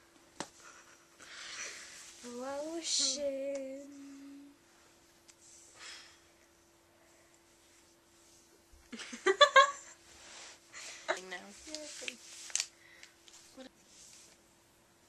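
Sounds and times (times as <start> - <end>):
faint steady hum: 0.0 - 15.0
girl singing: 2.2 - 4.6.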